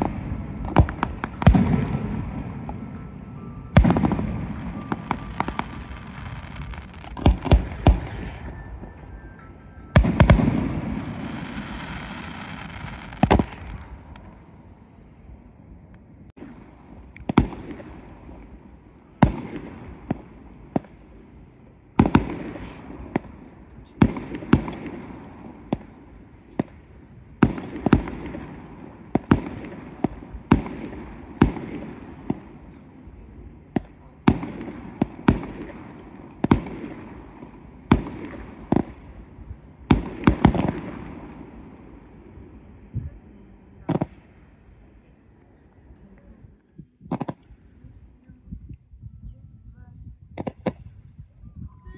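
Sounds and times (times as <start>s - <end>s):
fireworks bursting with echo: 0.0s - 15.2s, 16.3s - 45.9s, 46.6s - 48.2s, 50.3s - 51.0s.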